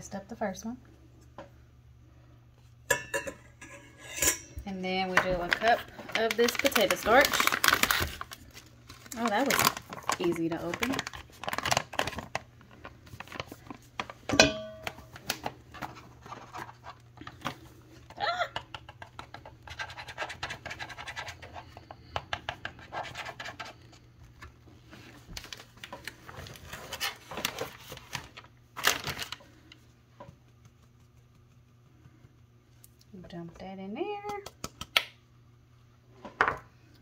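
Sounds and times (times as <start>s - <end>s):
paper bag rustling: 5.6s - 13.9s, 25.0s - 29.4s.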